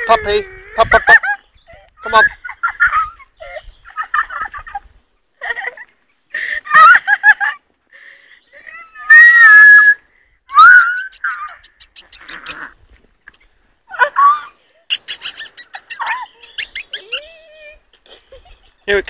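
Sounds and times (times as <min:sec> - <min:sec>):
puppies yelping and squealing: 0:02.4 - 0:03.6, 0:08.7 - 0:12.7, 0:14.0 - 0:17.8.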